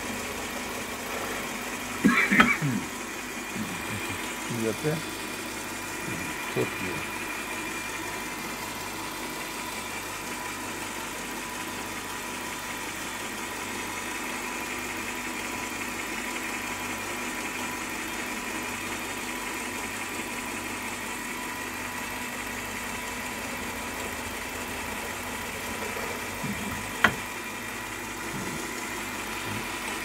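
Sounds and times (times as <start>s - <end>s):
drill motor humming: 0.0s - 12.0s, 22.1s - 30.0s.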